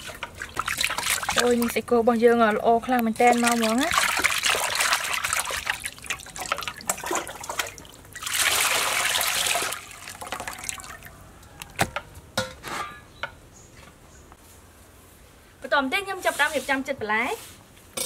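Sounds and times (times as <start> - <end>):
water pouring into basin: 0.0 - 1.7, 3.2 - 11.1
water splashing in metal basin: 0.0 - 1.9, 2.9 - 11.1.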